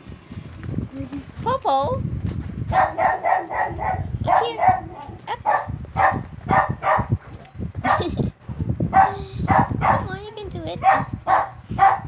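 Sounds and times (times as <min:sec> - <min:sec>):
puppy yapping: 0:02.7 - 0:08.1, 0:10.8 - 0:12.0.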